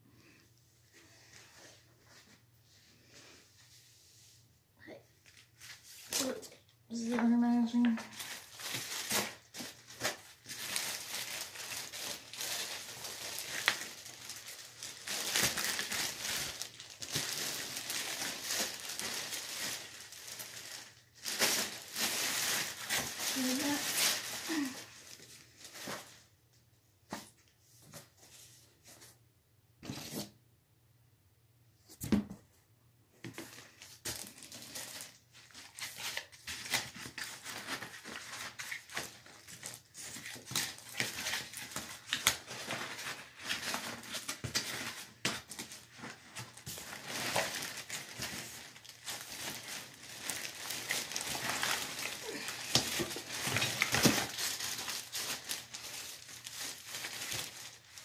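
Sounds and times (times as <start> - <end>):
plastic wrap crinkling: 5.2 - 26.3, 33.3 - 58.0.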